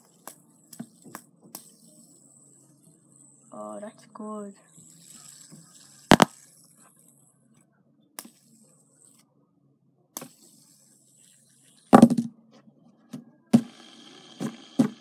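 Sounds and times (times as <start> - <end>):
fidget spinner knocks and clicks: 0.0 - 4.1, 4.8 - 7.2, 8.2 - 9.2, 10.2 - 12.4, 14.4 - 15.0
fidget spinner whirring: 0.0 - 9.4, 10.1 - 12.2, 13.5 - 15.0.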